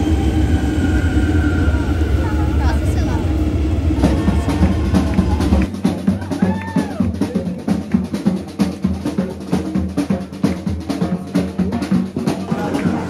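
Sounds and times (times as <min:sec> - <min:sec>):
steady low bass: 0:00.0 - 0:05.7
fast drum hits: 0:02.6 - 0:13.0.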